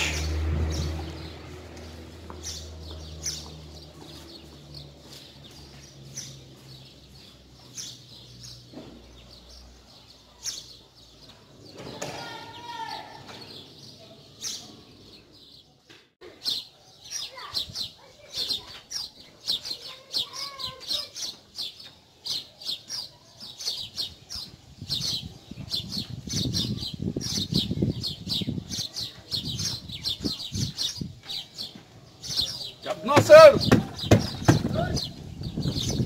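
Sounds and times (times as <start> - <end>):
small birds chirping: 0.0 - 36.0
shuffling footsteps on dirt: 1.7 - 7.7, 29.1 - 35.3.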